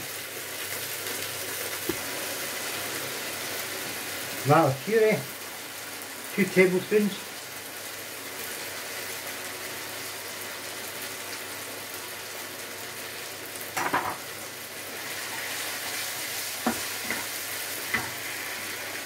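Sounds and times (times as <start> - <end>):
meat sizzling in a frying pan: 0.0 - 19.0
wooden spoon knocking on pan: 16.6 - 17.2.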